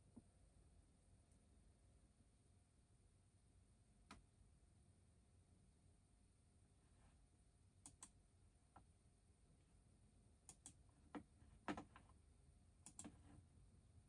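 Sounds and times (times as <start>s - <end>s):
mouse and keyboard clicks: 7.8s - 8.2s, 10.5s - 12.1s, 12.8s - 13.3s.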